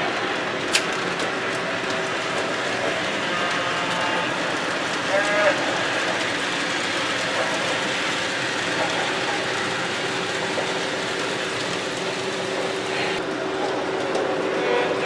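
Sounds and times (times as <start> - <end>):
model train wheels clattering: 0.1 - 15.0.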